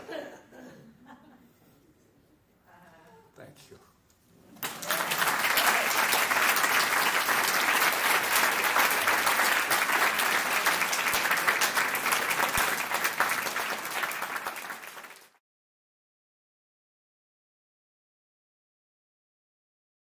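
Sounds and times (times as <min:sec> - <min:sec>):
audience applauding: 0:04.5 - 0:15.4.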